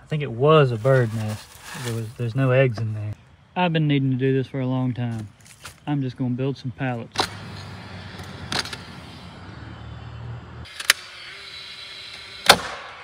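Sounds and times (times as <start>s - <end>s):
nail gun shots: 12.4s - 13.0s.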